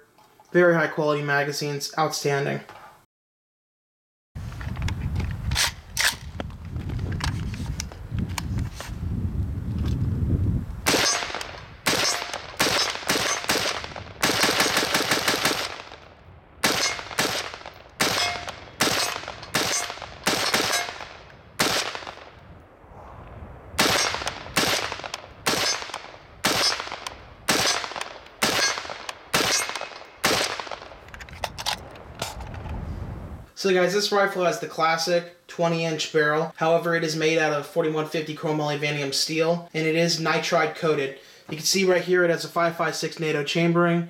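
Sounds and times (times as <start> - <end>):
rifle gunshots echoing: 10.9 - 22.5, 23.8 - 31.1.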